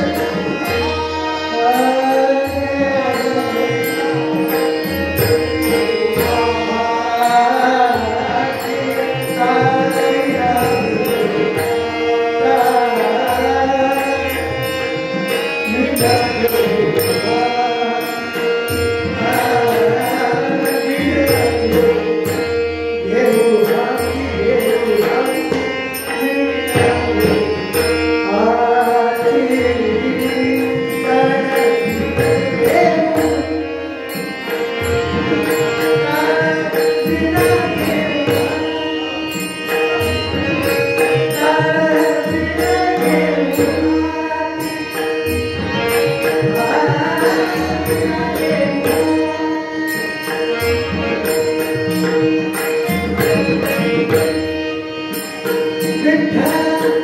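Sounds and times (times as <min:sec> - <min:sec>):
man singing: 0:00.0 - 0:57.0
small hand cymbals: 0:23.2 - 0:57.0.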